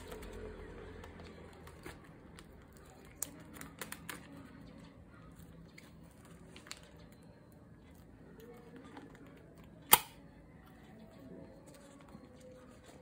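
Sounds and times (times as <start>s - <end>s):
plastic sleeves crinkling: 0.0s - 9.6s.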